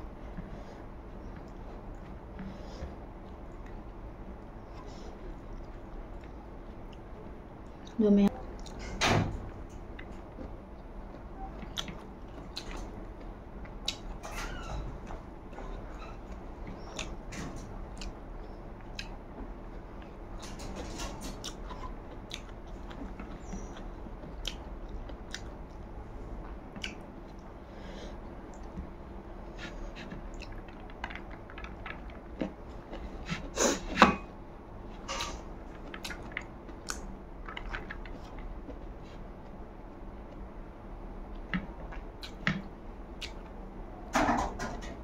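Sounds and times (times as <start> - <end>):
chewing and mouth smacks: 10.0 - 14.2, 16.6 - 19.2, 21.3 - 25.8, 26.4 - 27.5, 29.6 - 33.5, 35.7 - 39.6, 41.3 - 43.5.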